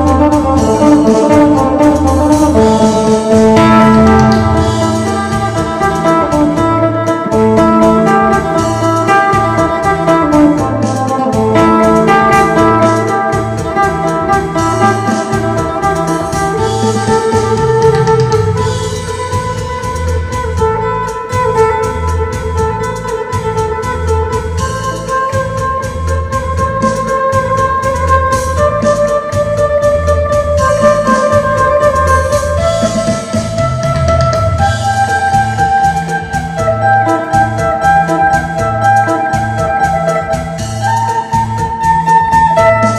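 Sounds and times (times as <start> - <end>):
plucked lute melody: 0.0 - 42.9
repeating bass pulse: 0.0 - 42.9
organ-like chords: 1.0 - 6.6.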